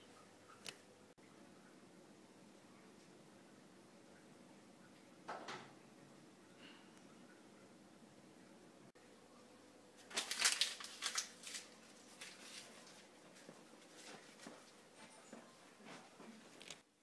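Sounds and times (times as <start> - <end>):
clothing rustling and shuffling: 10.0 - 16.8.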